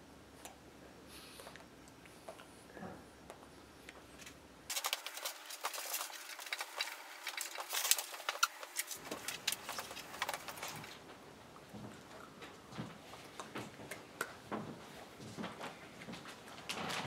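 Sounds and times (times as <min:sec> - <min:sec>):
pens and paper clicking and rustling: 0:04.2 - 0:11.1, 0:15.4 - 0:17.0.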